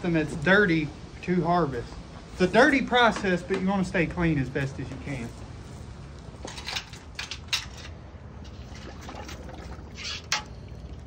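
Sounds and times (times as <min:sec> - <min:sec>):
water sloshing and splashing: 0:06.4 - 0:11.0.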